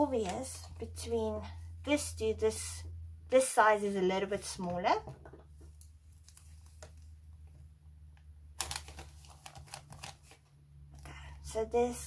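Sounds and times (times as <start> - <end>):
tape tearing: 8.6 - 10.4.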